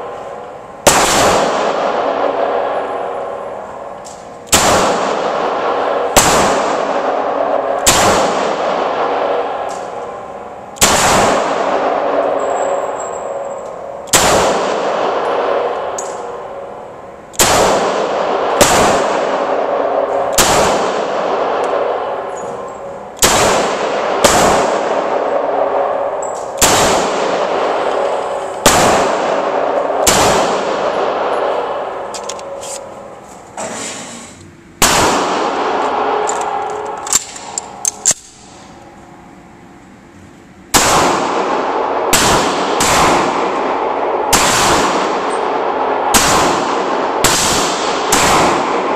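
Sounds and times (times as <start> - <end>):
pistol gunshots with echo: 0.0 - 32.6, 34.8 - 38.8, 40.7 - 48.9.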